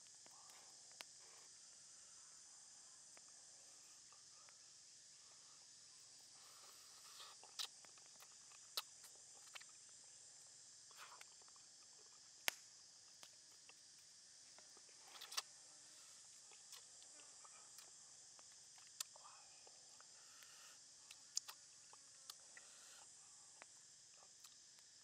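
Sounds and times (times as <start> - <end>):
faint high hiss: 0.0 - 25.0
crunchy chewing: 6.0 - 10.0, 10.9 - 25.0.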